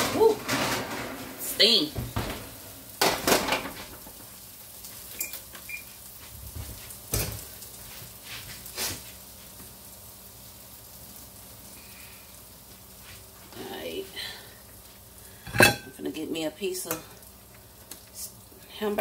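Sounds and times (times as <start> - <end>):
metal pan clattering on stove: 3.0 - 4.3, 15.5 - 16.0.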